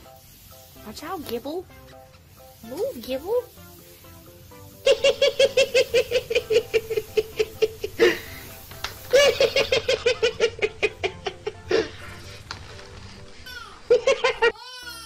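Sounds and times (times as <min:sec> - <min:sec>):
background music: 0:00.0 - 0:15.0
high-pitched laughter: 0:04.8 - 0:08.3, 0:09.1 - 0:12.0, 0:13.9 - 0:15.0.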